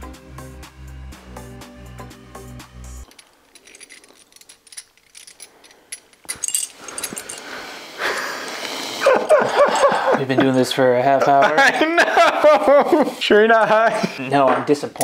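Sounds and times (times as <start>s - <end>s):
background music: 0.0s - 3.1s
metal rings clinking: 3.0s - 7.6s.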